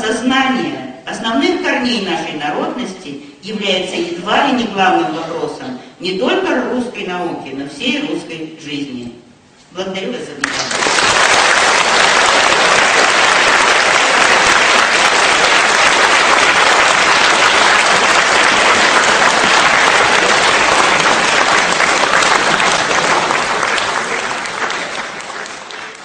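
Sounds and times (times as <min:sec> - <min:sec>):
audience applauding: 0:10.4 - 0:26.0.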